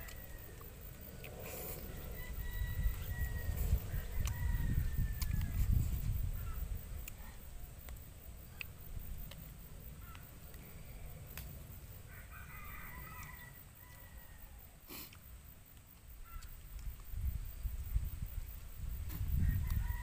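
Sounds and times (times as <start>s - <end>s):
faint rooster crowing: 0.0s - 7.6s, 12.0s - 14.9s, 19.2s - 20.0s
steady low rumble: 0.0s - 12.1s.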